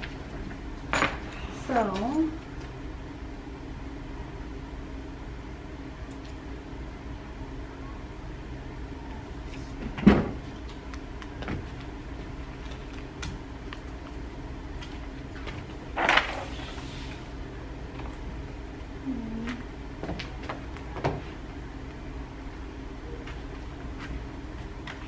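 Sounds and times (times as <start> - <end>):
low room hum: 0.0 - 25.0
paper rustling: 15.5 - 17.2.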